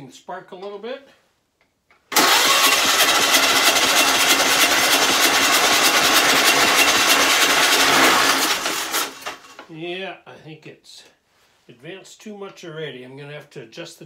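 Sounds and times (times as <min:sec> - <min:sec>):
engine firing with rapid beat: 0:02.2 - 0:09.2.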